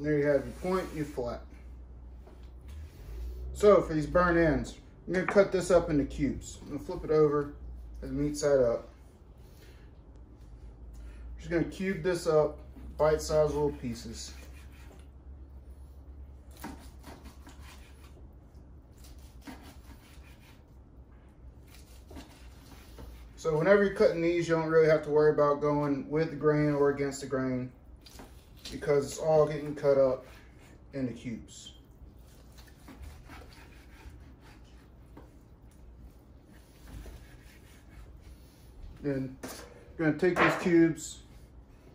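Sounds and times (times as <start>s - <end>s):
knife rubbing on wooden board: 13.3s - 15.1s, 16.6s - 18.2s, 19.0s - 20.6s, 32.2s - 35.4s, 36.4s - 38.8s
knife sawing through meat: 13.4s - 15.1s, 16.5s - 18.2s, 18.9s - 20.7s, 21.6s - 23.4s, 32.2s - 35.0s, 36.4s - 38.7s.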